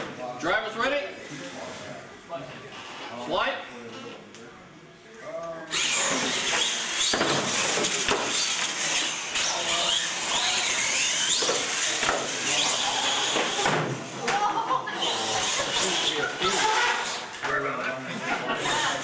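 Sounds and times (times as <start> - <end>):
electric motors whining: 5.7 - 14.2, 14.8 - 17.4.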